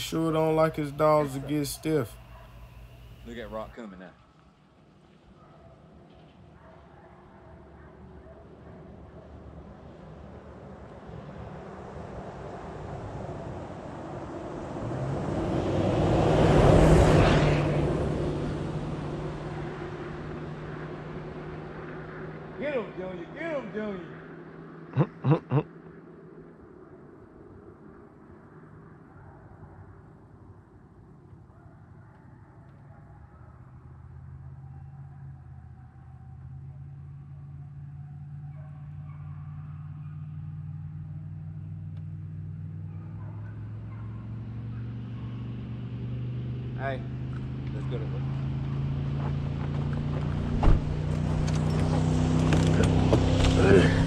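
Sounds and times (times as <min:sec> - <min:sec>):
vehicle engine humming: 0:00.0 - 0:03.8, 0:08.0 - 0:25.6, 0:36.3 - 0:54.0
pickup truck driving on sand road: 0:00.0 - 0:24.9, 0:33.8 - 0:54.0.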